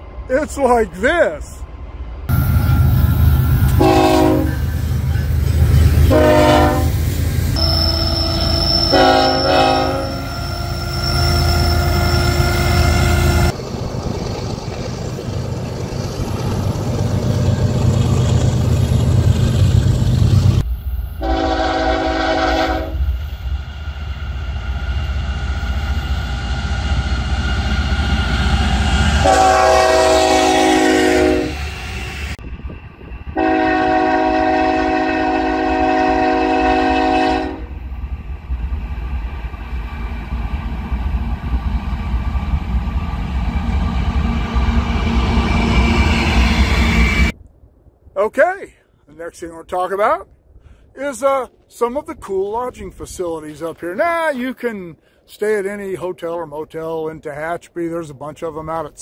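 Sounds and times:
locomotive rumble: 1.4 - 47.5
locomotive air horn chords: 3.7 - 4.7, 6.0 - 7.0, 7.6 - 13.5, 21.2 - 23.0, 29.2 - 31.6, 33.4 - 37.7.

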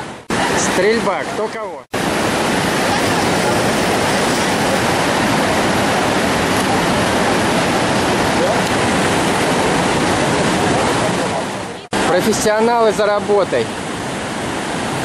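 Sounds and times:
whitewater rapids rushing: 0.0 - 15.0.

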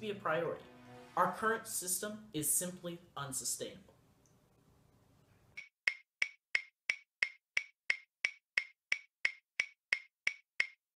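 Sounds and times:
sharp evenly spaced clicks: 5.6 - 10.8.

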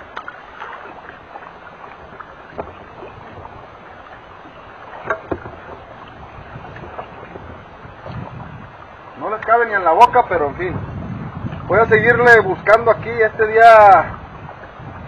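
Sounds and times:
water noise: 0.0 - 15.0
wind: 0.0 - 15.0.

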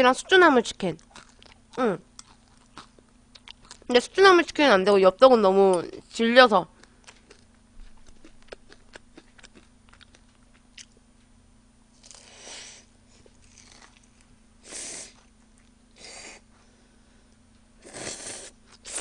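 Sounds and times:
wet chewing clicks: 6.8 - 11.0.

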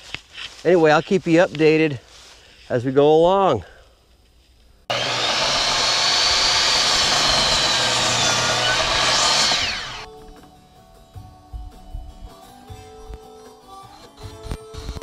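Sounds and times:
miter saw cutting with whine: 4.9 - 10.1
faint music: 10.1 - 15.0.

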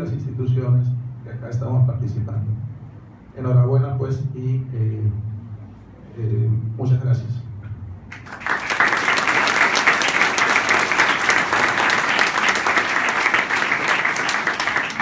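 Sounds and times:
crowd applauding: 8.2 - 15.0.

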